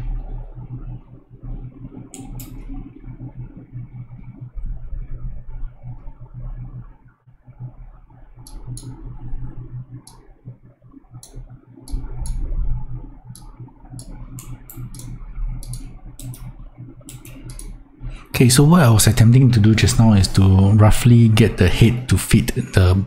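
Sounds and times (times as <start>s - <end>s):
steady low hum: 0.0s - 23.0s
computer mouse clicks: 2.0s - 2.8s, 8.4s - 9.0s, 10.0s - 10.3s, 11.1s - 17.8s.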